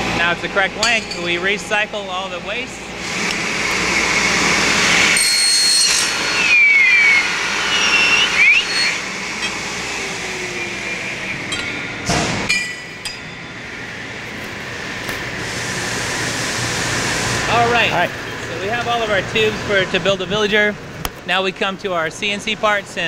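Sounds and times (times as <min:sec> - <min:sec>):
sharp metal clank: 0:00.8 - 0:01.4, 0:11.5 - 0:13.6
saw rushing noise: 0:02.9 - 0:20.0
tube squealing on metal: 0:04.9 - 0:12.0
metallic clinks and ringing: 0:12.5 - 0:13.6.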